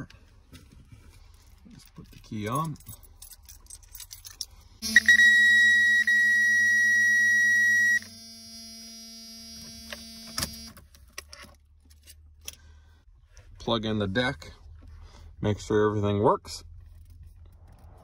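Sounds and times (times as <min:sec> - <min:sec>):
loud steady buzzer tone: 0:04.8 - 0:10.8.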